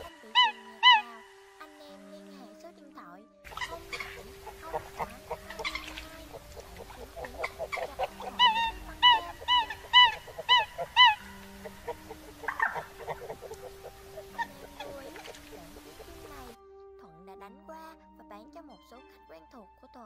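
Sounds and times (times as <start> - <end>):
coots honking calls: 0.0 - 1.4, 3.5 - 16.6
soft bird calls and clicks: 3.5 - 16.6.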